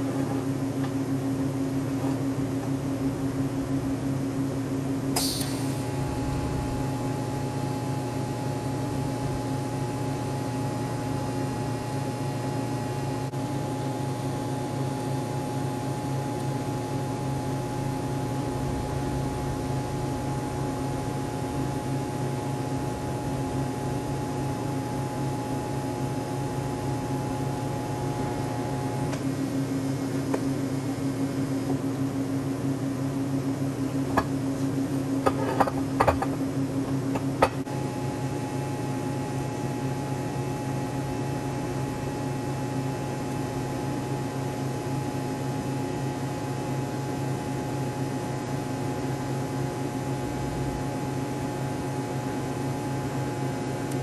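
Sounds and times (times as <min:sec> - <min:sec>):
low machine hum: 0:00.0 - 0:54.0
arc welding hiss: 0:05.2 - 0:06.8.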